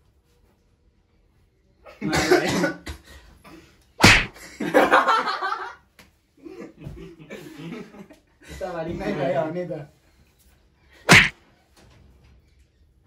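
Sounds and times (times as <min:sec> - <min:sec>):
hand slap: 0:04.0 - 0:04.4, 0:11.1 - 0:11.3.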